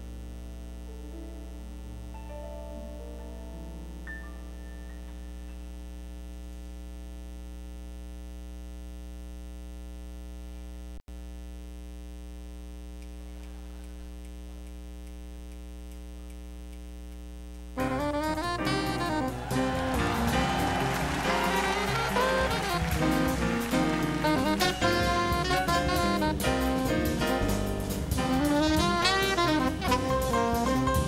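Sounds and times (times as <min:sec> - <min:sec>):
electrical mains hum: 0:00.0 - 0:31.0
held piano notes: 0:00.9 - 0:05.5, 0:17.8 - 0:31.0
jazz band playing: 0:01.0 - 0:04.5, 0:17.8 - 0:31.0.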